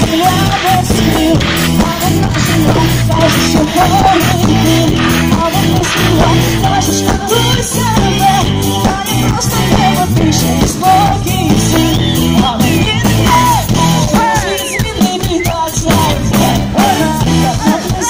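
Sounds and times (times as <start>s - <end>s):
live rock band playing: 0.0s - 18.0s
woman singing: 0.0s - 18.0s.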